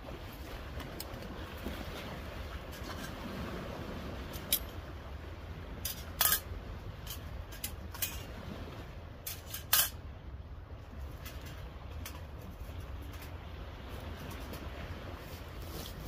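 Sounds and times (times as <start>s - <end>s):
surf and wind hiss: 0.0s - 16.0s
metal tool clanking in metal stove: 5.8s - 8.3s, 9.2s - 10.0s.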